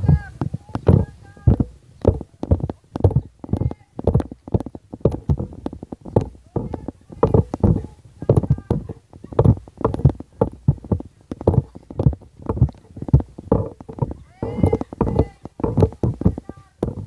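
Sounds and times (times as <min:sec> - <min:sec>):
people talking indistinctly: 0:06.5 - 0:17.0.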